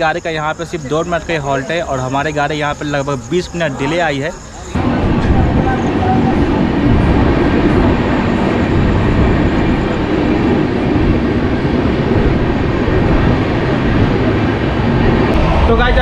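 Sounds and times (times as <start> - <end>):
train wheels rumbling on rails: 4.8 - 16.0.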